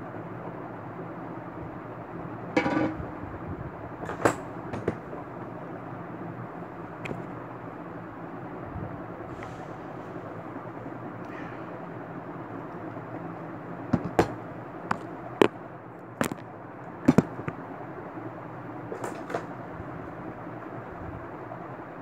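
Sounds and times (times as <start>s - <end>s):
objects clicking and knocking: 16.2s - 16.5s, 17.1s - 17.6s.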